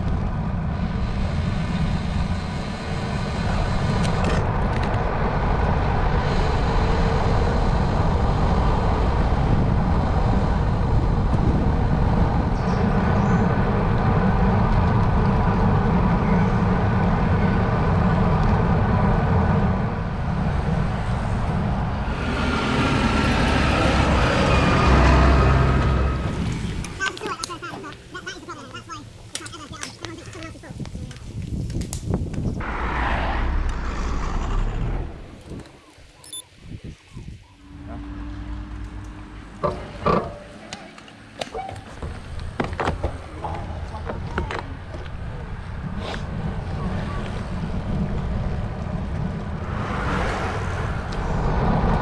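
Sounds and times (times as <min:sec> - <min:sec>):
wind buffeting microphone: 0:00.0 - 0:25.0, 0:28.8 - 0:38.0, 0:42.0 - 0:52.0
lorry passing close: 0:00.0 - 0:29.3, 0:32.5 - 0:41.4, 0:44.7 - 0:52.0
bicycle tyre noise: 0:41.5 - 0:52.0.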